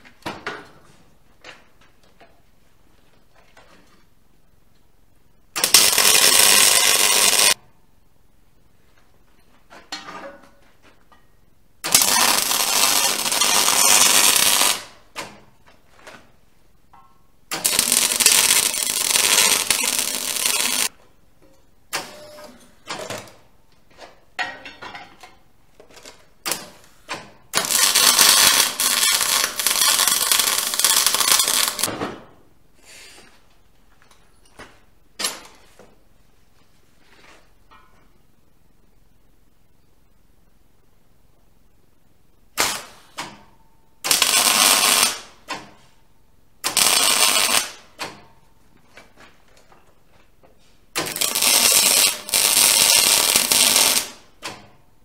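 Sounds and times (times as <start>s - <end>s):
arc welding hiss: 5.6s - 7.6s, 11.8s - 15.0s, 17.5s - 20.9s, 27.6s - 31.9s, 44.0s - 45.3s, 46.6s - 47.8s, 51.0s - 54.2s
metal clanks and taps: 9.7s - 11.3s, 24.4s - 25.4s.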